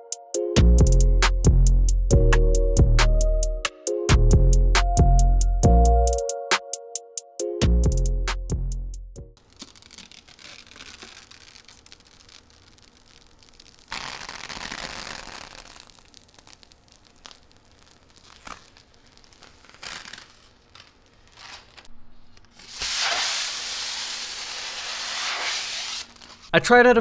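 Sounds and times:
plastic film peeling and crinkling: 0:09.4 - 0:26.5.

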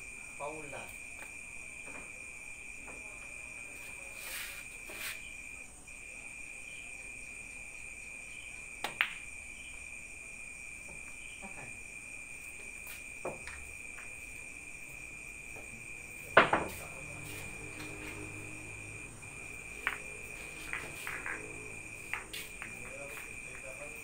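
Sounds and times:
crickets trilling: 0:00.0 - 0:24.0
cue striking billiard balls: 0:16.3 - 0:16.8, 0:19.8 - 0:23.6
billiard balls clicking: 0:19.8 - 0:24.0.

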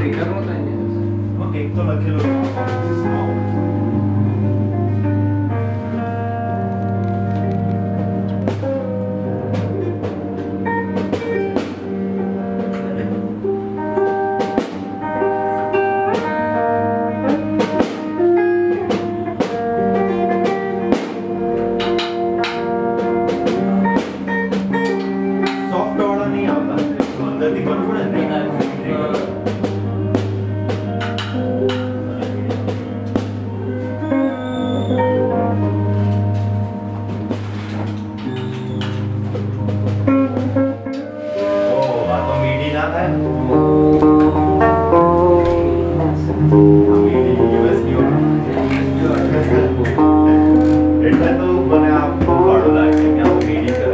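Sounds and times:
drum kit: 0:00.0 - 0:53.9
guitar notes: 0:00.0 - 0:53.9
sustained low bass tone: 0:39.1 - 0:53.9.

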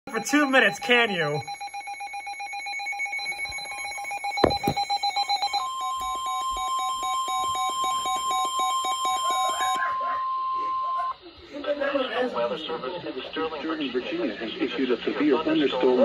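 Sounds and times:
rapid electronic beeping: 0:00.1 - 0:10.1
steady warning alarm tone: 0:00.1 - 0:12.9
knock: 0:04.4 - 0:04.8.

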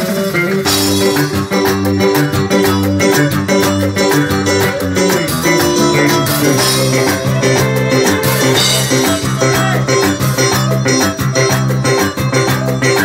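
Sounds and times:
drum kit: 0:00.0 - 0:13.0
electric guitar: 0:00.0 - 0:13.0.

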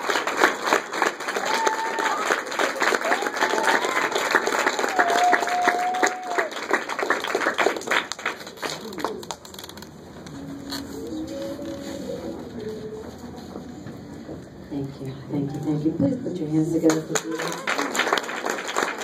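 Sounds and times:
congregation applauding: 0:00.0 - 0:09.8, 0:16.9 - 0:19.0.

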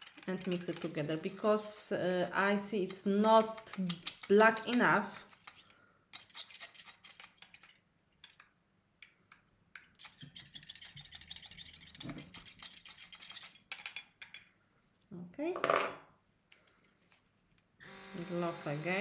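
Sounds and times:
spatula scraping metal cup: 0:00.0 - 0:08.4, 0:09.8 - 0:14.4.

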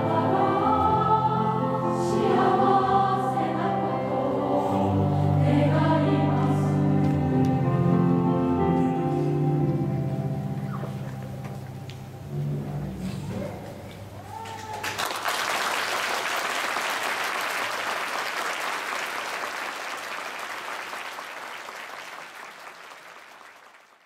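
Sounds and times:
audience applause: 0:14.3 - 0:24.0.

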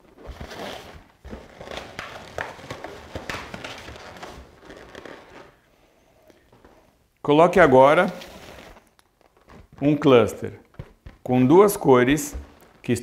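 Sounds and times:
balloons rubbing and squeaking: 0:00.0 - 0:05.7, 0:07.6 - 0:13.0
balloon taps: 0:10.6 - 0:12.8.

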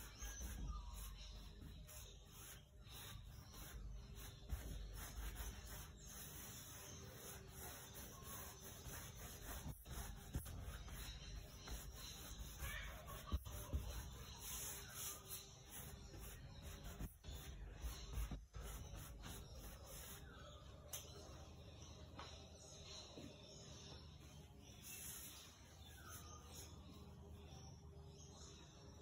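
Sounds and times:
paintbrush rubbing on canvas: 0:00.0 - 0:20.5, 0:24.6 - 0:27.2.

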